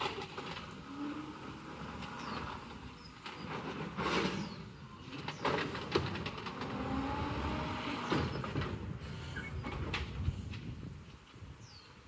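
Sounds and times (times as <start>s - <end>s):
garbage truck engine rumbling: 0.0s - 10.3s
faint hydraulic whine: 7.4s - 9.9s.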